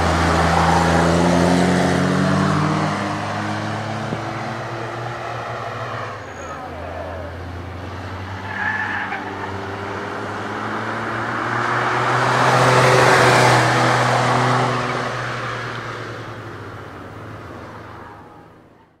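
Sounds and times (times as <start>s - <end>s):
race car engine pulling hard: 0.0s - 19.0s.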